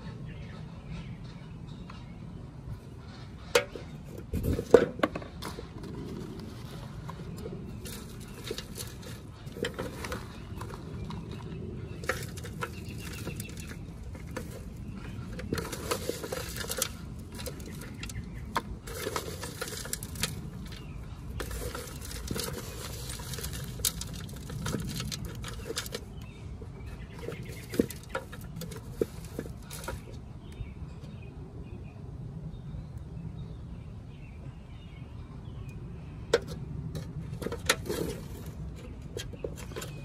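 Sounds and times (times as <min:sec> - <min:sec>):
metal scoop scraping through soil: 0:03.0 - 0:30.2, 0:36.4 - 0:40.0
hands stirring gritty potting mix: 0:03.1 - 0:30.7, 0:36.4 - 0:40.0.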